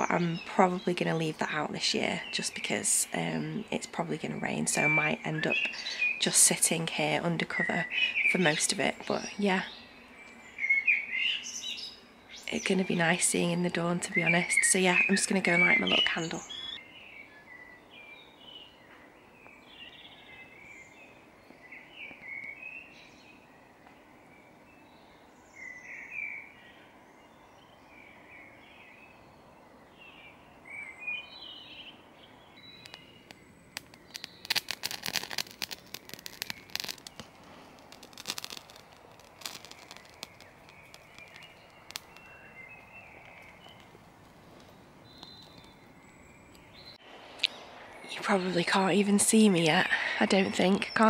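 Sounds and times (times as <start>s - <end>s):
birds chirping and singing: 7.5s - 23.7s, 39.8s - 51.0s
sharp clicks and crackling rustles: 32.6s - 45.9s.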